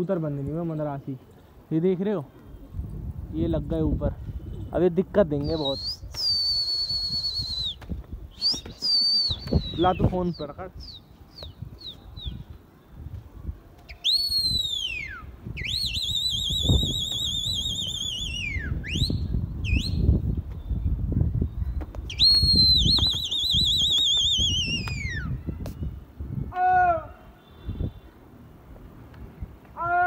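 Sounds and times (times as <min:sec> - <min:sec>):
wind: 0:00.0 - 0:30.0
person whistling: 0:05.4 - 0:07.8, 0:08.4 - 0:09.9, 0:22.1 - 0:25.2.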